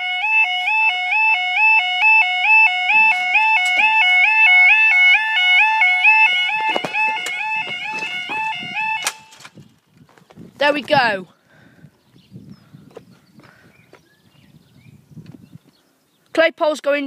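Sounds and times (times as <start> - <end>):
level crossing two-tone alarms: 0.0 - 9.4.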